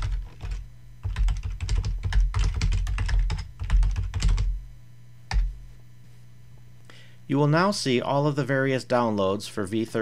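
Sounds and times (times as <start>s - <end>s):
typing on computer keyboard: 0.0s - 4.5s.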